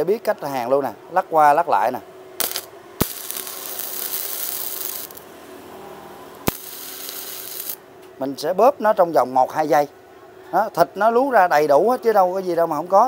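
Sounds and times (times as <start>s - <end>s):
welding arc crackling and hissing: 2.4s - 5.3s, 6.3s - 7.8s
welder hum: 2.4s - 8.0s
welder click: 6.4s - 7.8s.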